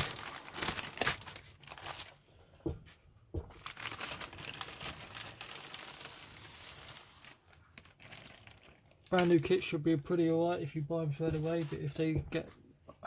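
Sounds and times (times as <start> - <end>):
plastic bag crinkling: 0.0 - 2.2, 3.5 - 9.7.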